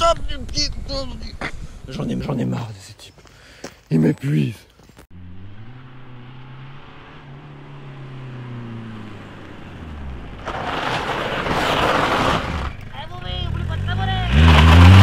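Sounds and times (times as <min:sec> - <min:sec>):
car engine revving past: 0:05.2 - 0:12.9, 0:13.5 - 0:15.0.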